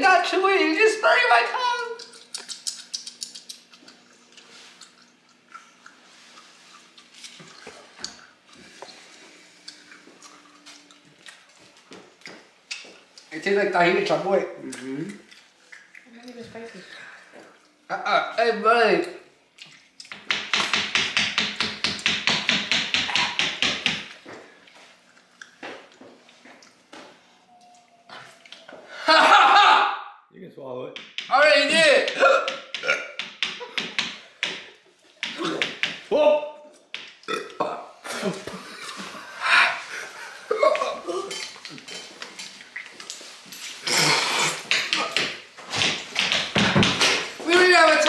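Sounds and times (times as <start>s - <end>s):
wet chewing and lip smacking: 2.0s - 8.4s, 9.6s - 13.3s, 14.6s - 16.4s, 19.5s - 20.2s
hands slapping a tabletop: 20.1s - 24.2s, 31.0s - 31.3s, 44.5s - 47.4s.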